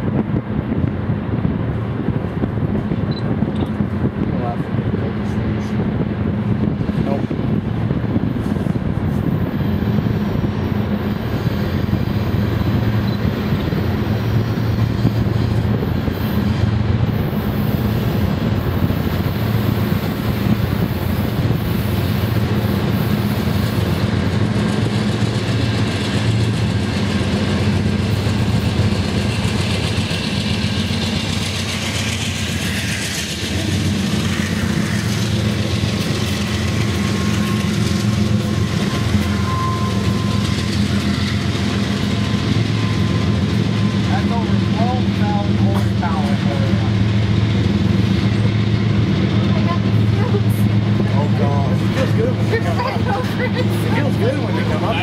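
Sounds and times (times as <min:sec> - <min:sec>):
diesel locomotive engines droning: 0:00.0 - 0:55.0
train wheels on rails: 0:00.0 - 0:55.0.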